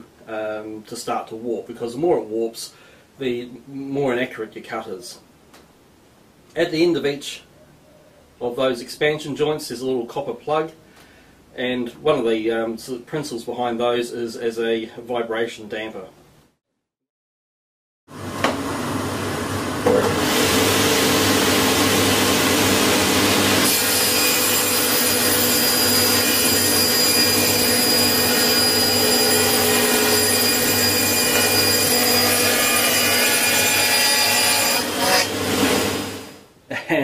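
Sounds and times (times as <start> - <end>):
table saw cutting panel: 18.2 - 36.4
dust extraction: 18.8 - 33.0.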